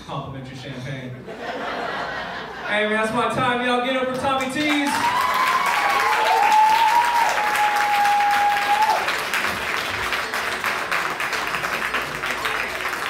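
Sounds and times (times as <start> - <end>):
audience applauding: 4.4 - 13.0
person whooping: 4.9 - 9.1.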